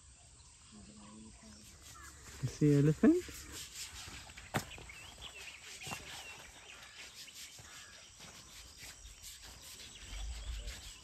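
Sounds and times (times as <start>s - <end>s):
bird chirps: 0.0s - 11.0s
insects: 0.0s - 11.0s.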